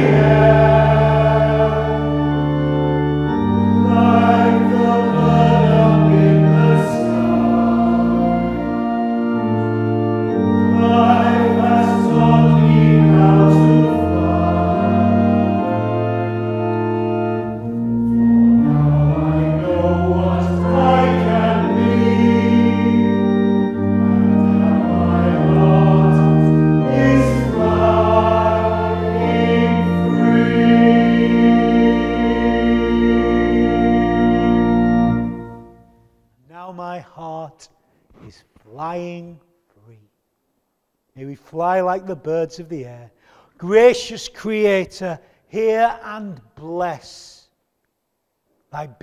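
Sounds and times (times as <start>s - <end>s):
congregation singing a hymn: 0.0s - 35.7s
church organ chords: 0.0s - 37.7s.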